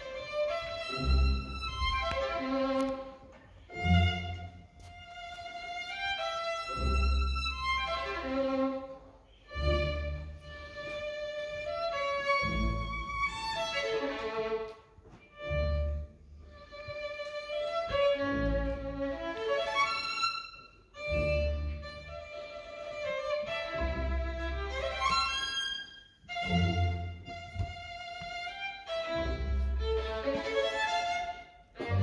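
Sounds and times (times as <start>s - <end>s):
symphony orchestra playing: 0.0s - 3.0s.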